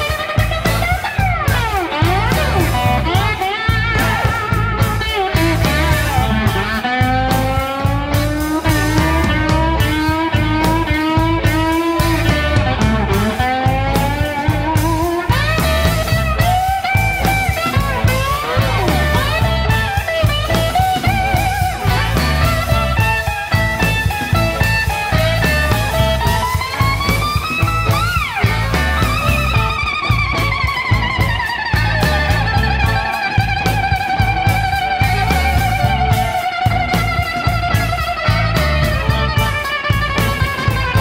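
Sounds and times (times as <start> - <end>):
bass guitar groove: 0.0 - 41.0
drums: 0.0 - 41.0
lead guitar bending notes: 0.0 - 41.0.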